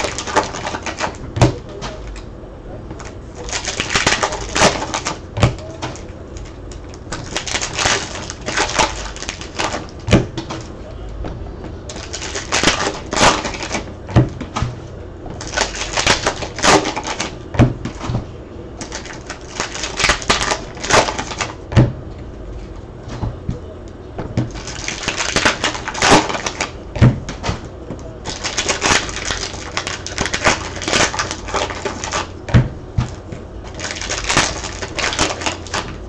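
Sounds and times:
foil wrappers crinkling: 0:00.0 - 0:02.2, 0:03.0 - 0:10.8, 0:11.9 - 0:13.9, 0:15.4 - 0:18.0, 0:18.8 - 0:21.6, 0:24.5 - 0:26.8, 0:28.1 - 0:36.0
cards snapping: 0:18.8 - 0:21.6, 0:24.5 - 0:27.7.

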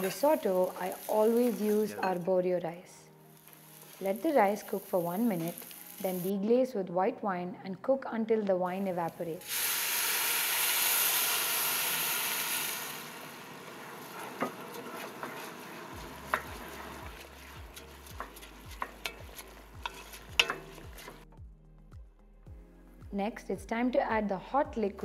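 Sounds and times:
wine sizzling in hot pot: 0:00.0 - 0:02.4, 0:03.2 - 0:06.4, 0:08.8 - 0:21.3
wooden spoon stirring rice: 0:13.8 - 0:21.3.

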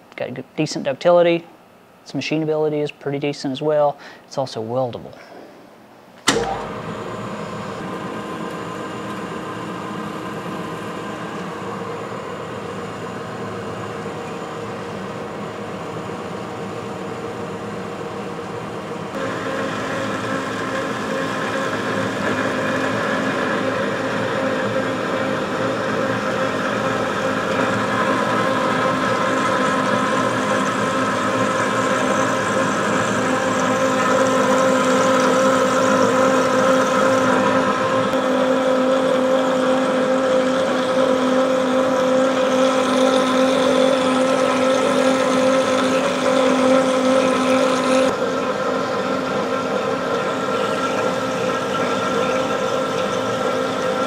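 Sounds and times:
band saw cutting steel: 0:19.2 - 0:54.0.

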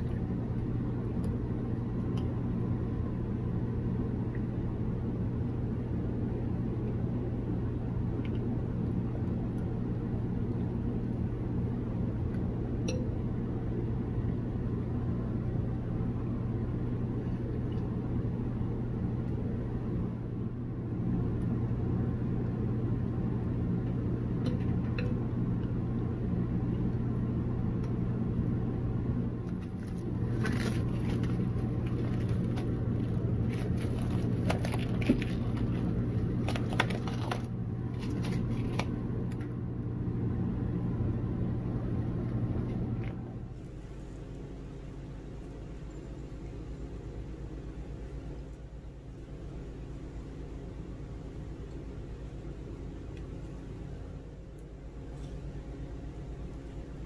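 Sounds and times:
low mechanical hum: 0:00.0 - 0:57.0
crackling: 0:29.4 - 0:39.5.

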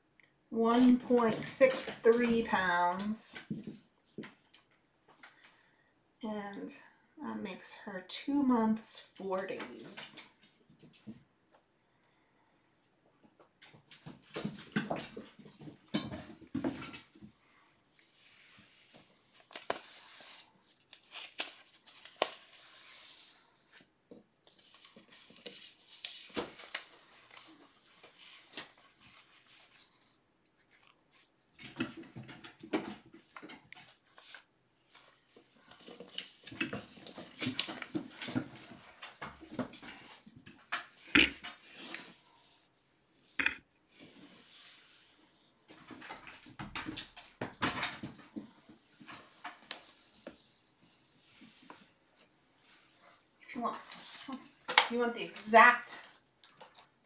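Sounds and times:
rustling: 0:13.6 - 0:42.6.

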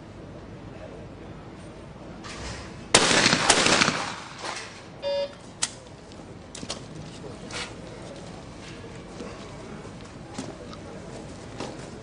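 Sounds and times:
shotgun shots with echo: 0:03.0 - 0:04.8
short electronic beep: 0:05.0 - 0:05.4.

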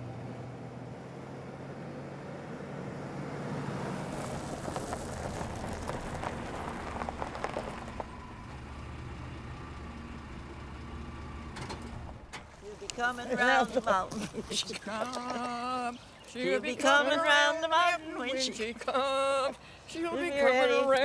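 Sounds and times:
vehicle engine hum: 0:00.0 - 0:16.4
road noise: 0:00.0 - 0:21.0.

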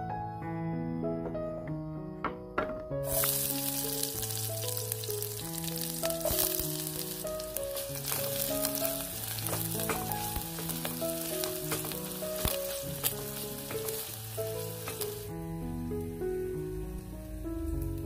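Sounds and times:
shallots sizzling in hot oil: 0:03.0 - 0:18.0.

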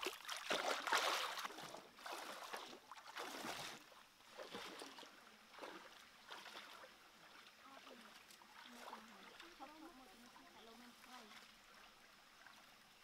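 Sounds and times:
shallow water sloshing: 0:00.0 - 0:13.0.

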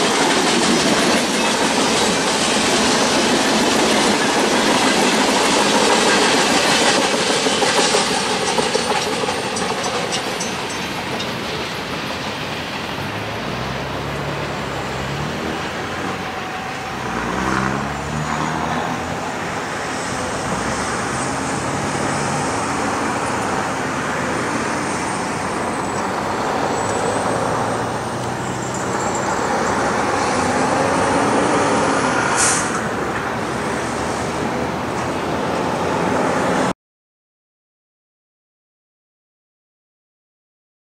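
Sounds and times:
freight train wheels clattering: 0:00.0 - 0:13.6
brief high hiss: 0:32.2 - 0:32.9.

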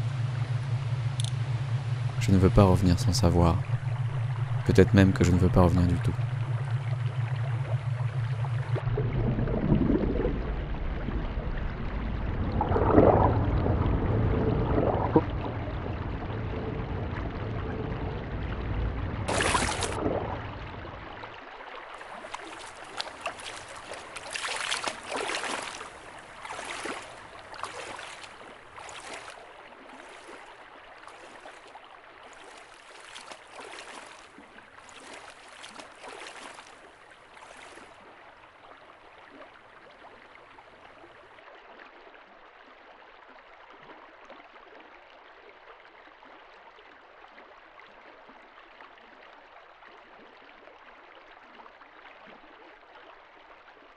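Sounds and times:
wading through shallow water: 0:00.0 - 0:53.9
flowing river water hiss: 0:19.3 - 0:40.8.

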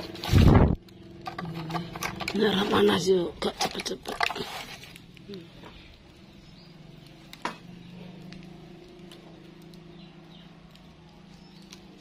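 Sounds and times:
firewood crackling and popping: 0:00.0 - 0:12.0.

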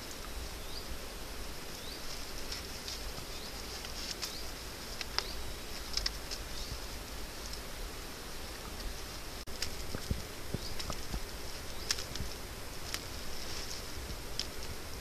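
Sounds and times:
dry grass rustling and crackling: 0:00.0 - 0:15.0.

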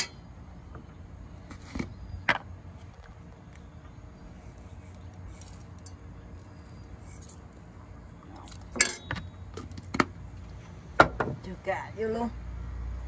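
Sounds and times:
dishes and utensils clinking: 0:08.8 - 0:09.2.

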